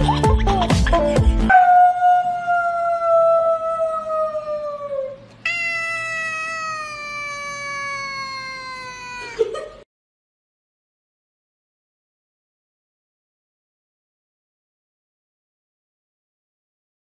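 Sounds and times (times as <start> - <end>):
cat meowing: 5.4 - 9.4.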